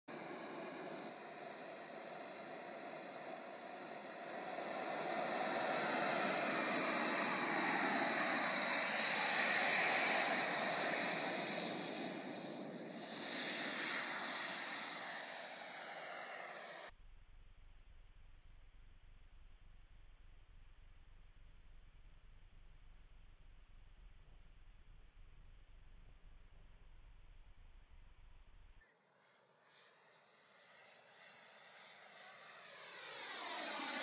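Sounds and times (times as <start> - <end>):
jet turbine whine: 0.1 - 16.9, 29.7 - 34.0
loud rushing exhaust: 4.6 - 16.9.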